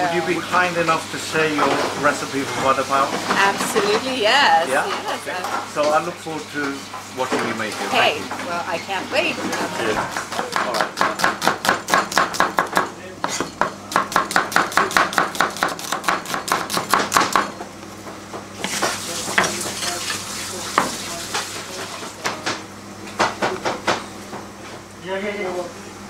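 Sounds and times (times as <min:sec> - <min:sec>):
knife slicing onion on board: 0:09.8 - 0:17.5, 0:18.6 - 0:22.5.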